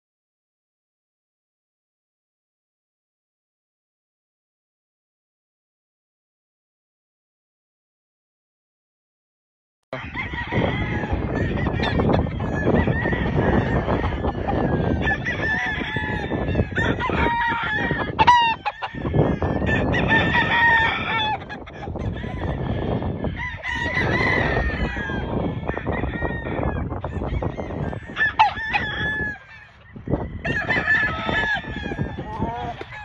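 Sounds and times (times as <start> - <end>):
chickens clucking: 10.0 - 33.0
roosters crowing: 10.0 - 33.0.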